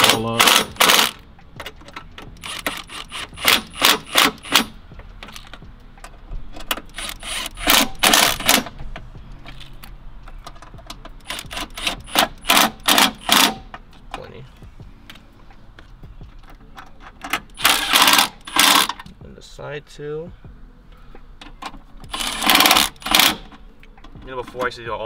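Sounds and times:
power ratchet rattling clicks: 0:00.0 - 0:05.6, 0:17.3 - 0:19.1, 0:22.0 - 0:23.6.

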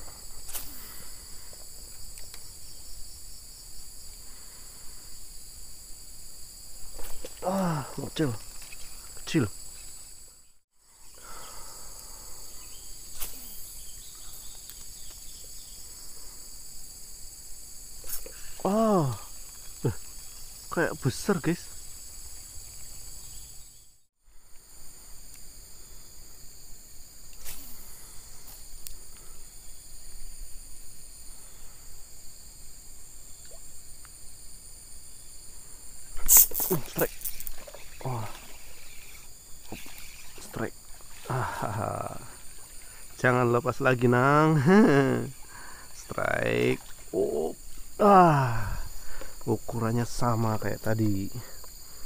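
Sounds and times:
insect chorus shrilling: 0:00.0 - 0:52.0
faint clicks: 0:14.5 - 0:15.2.

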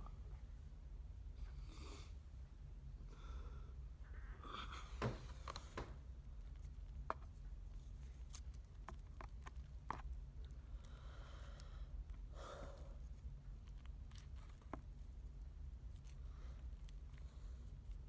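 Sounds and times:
low steady hum: 0:00.0 - 0:18.0
soft breaths: 0:01.2 - 0:06.1, 0:10.4 - 0:15.2, 0:15.9 - 0:18.0.

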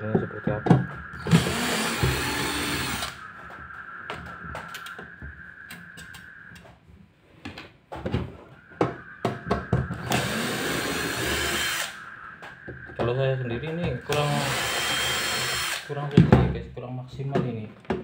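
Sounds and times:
cordless drill whining: 0:01.2 - 0:03.2, 0:10.0 - 0:12.0, 0:14.1 - 0:15.9.

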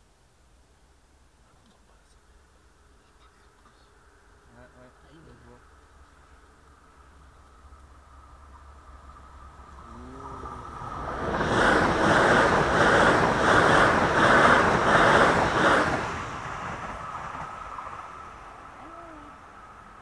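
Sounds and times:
train wheels clattering on rails: 0:10.8 - 0:18.6.

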